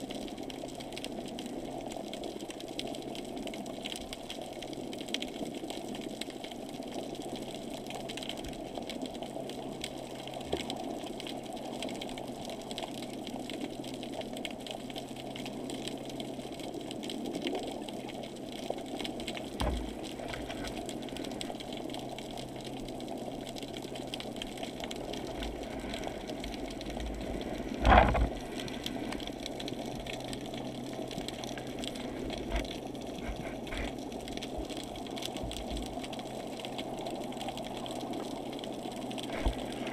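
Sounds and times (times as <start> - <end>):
muffled underwater rush: 19.2 - 36.0
faint hum: 19.4 - 36.1.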